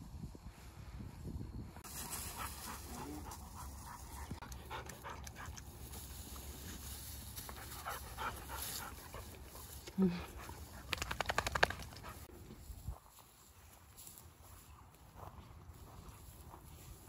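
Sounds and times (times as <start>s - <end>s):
dog panting: 2.3s - 5.7s, 7.5s - 11.1s.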